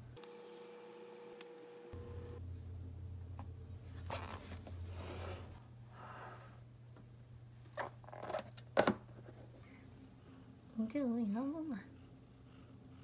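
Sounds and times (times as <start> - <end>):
low hum: 0.0 - 7.6.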